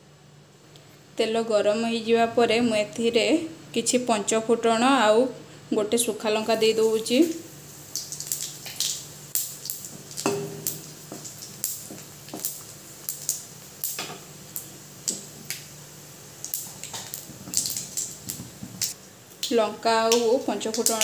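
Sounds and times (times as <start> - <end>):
seeds crackling and popping in oil: 6.5 - 21.0.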